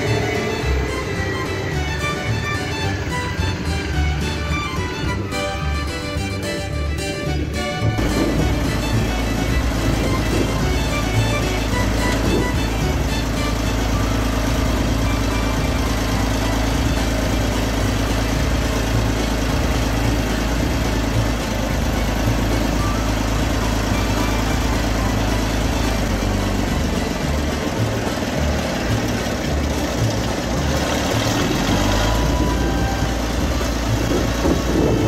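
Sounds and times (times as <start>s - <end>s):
tractor engine idling: 0.0s - 35.0s.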